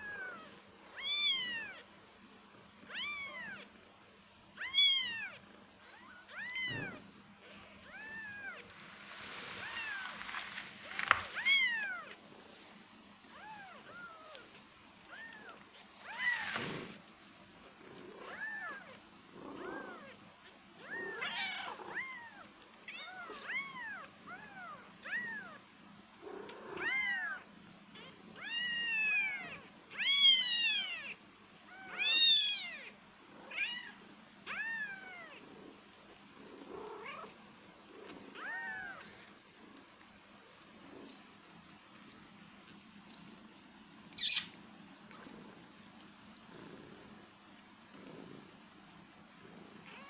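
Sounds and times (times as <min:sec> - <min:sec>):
kittens mewing: 0:04.6 - 0:08.7
rustling: 0:06.4 - 0:19.0.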